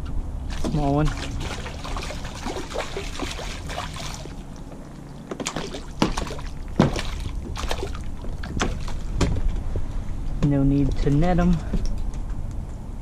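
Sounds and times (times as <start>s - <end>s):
fish splashing at water surface: 0.5s - 9.1s
sharp knocks on kayak: 5.3s - 9.5s.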